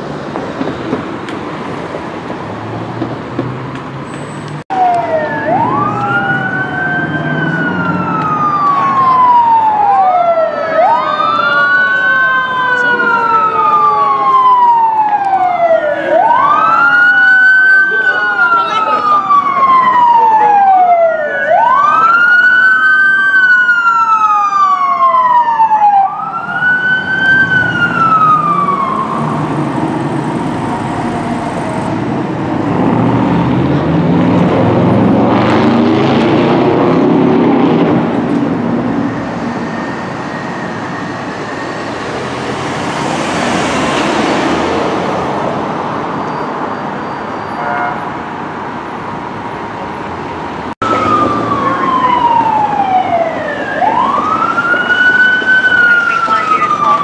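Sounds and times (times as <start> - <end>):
heavy engine driving off: 0.0 - 17.0, 26.8 - 47.2, 50.3 - 57.0
traffic passing: 0.0 - 57.0
fire engine siren wailing: 4.5 - 57.0.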